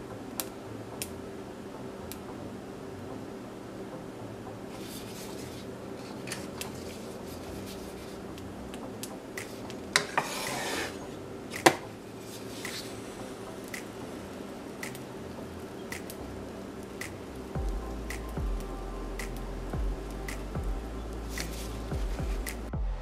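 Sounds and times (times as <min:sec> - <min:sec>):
steady low hum: 0:00.0 - 0:23.0
short scrape: 0:10.1 - 0:11.0.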